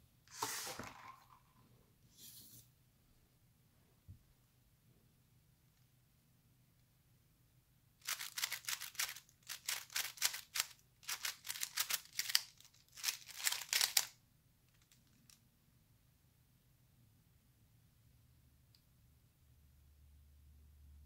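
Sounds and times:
puzzle cube plastic clicks: 8.0s - 14.1s.

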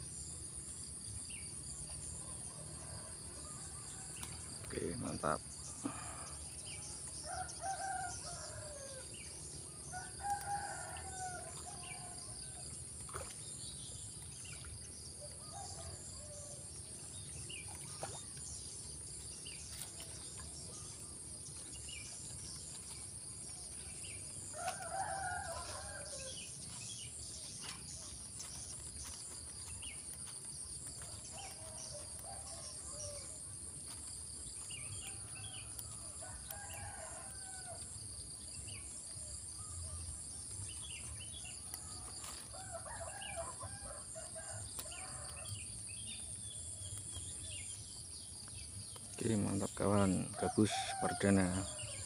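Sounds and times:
high insect drone: 2.2s - 12.6s, 21.8s - 38.0s.

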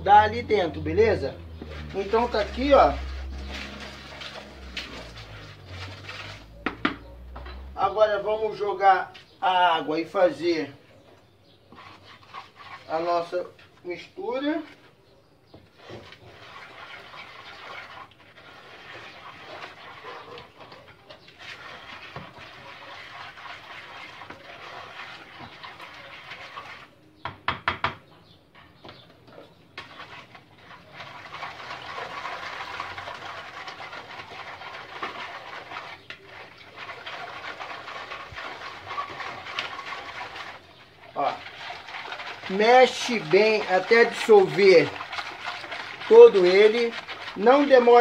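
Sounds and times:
hand mixing wet cement in bowl: 0.0s - 27.2s, 29.0s - 48.0s
sharp knocks: 6.6s - 7.6s.

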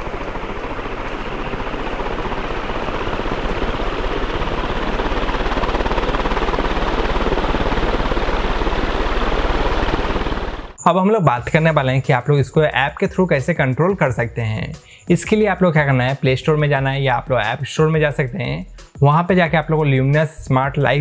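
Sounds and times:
ceiling fan rushing air: 0.0s - 10.8s.

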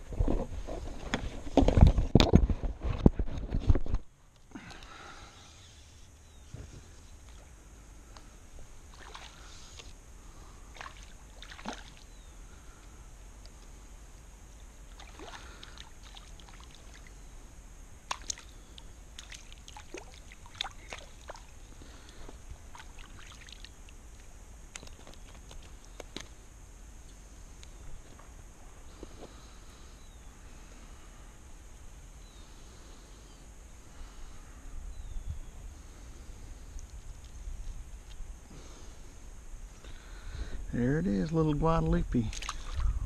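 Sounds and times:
water sloshing at hull: 8.9s - 9.9s, 10.7s - 12.1s, 19.2s - 23.8s, 42.3s - 43.0s.

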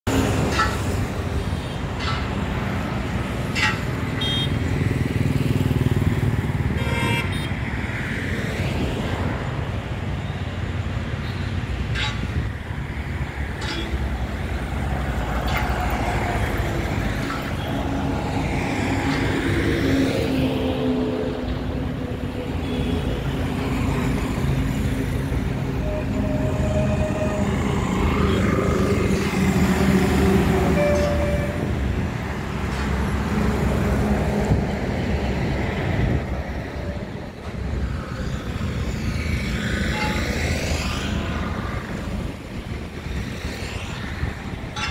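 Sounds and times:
cars passing: 0.0s - 44.9s
tyres on the road: 0.0s - 44.9s
motorcycles passing: 3.0s - 9.6s.

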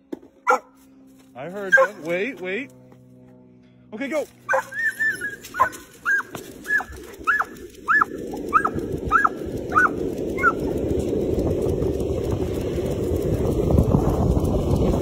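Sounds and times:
running footsteps: 0.0s - 15.0s
dog yelping: 0.4s - 0.8s, 1.7s - 2.1s, 4.5s - 10.8s
wind on microphone: 5.2s - 15.0s.

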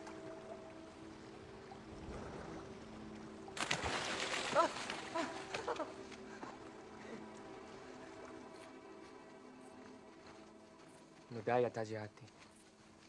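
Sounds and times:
water splashing: 0.0s - 8.4s
soft sustained music: 0.0s - 13.0s.

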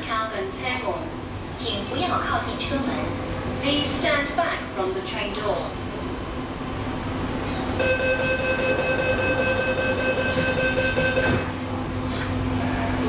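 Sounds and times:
train low hum: 0.0s - 13.0s
door-closing warning tone: 7.8s - 11.6s.

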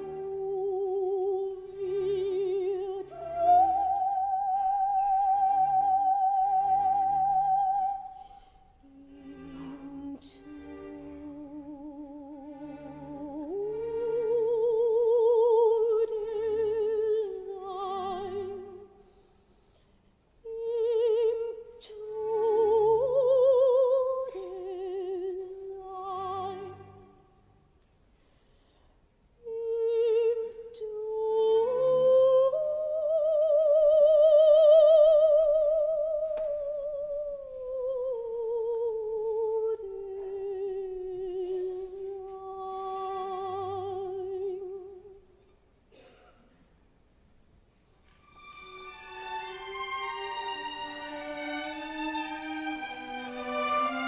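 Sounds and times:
operatic soprano singing: 0.0s - 8.2s, 8.8s - 19.0s, 20.4s - 27.3s, 29.4s - 45.3s.

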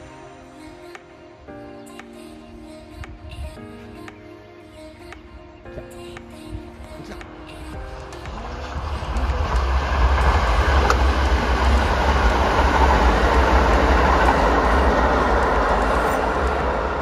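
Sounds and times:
train wheels rumbling on rails: 8.2s - 17.0s.

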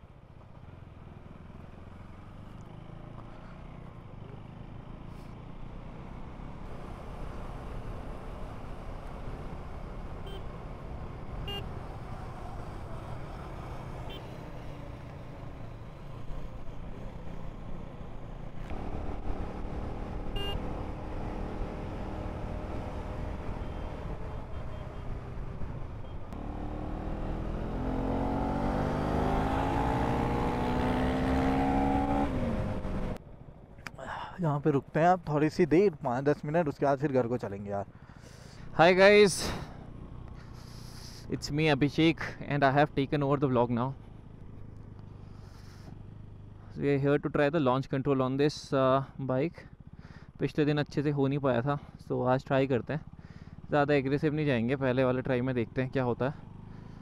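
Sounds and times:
road noise: 0.0s - 57.0s
vehicle engine running: 37.9s - 41.3s, 44.0s - 46.8s, 49.7s - 50.4s, 53.0s - 53.8s, 56.2s - 57.0s.

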